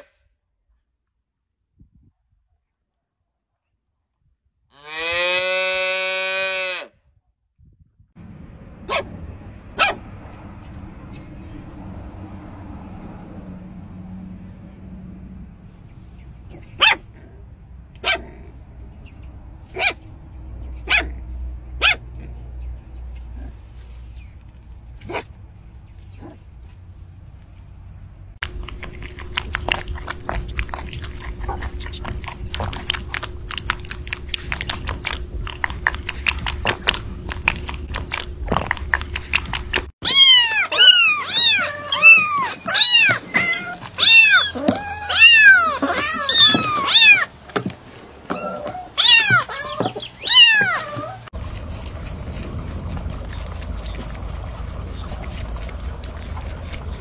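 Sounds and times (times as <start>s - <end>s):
rabbit chewing: 28.4s - 57.0s
kitten meowing: 40.0s - 47.3s, 48.3s - 51.2s.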